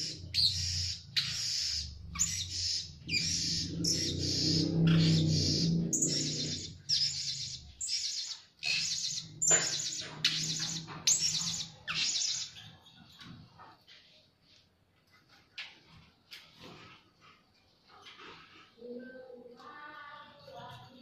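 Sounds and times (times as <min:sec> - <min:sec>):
parrots high-pitched calls: 0:00.0 - 0:12.6.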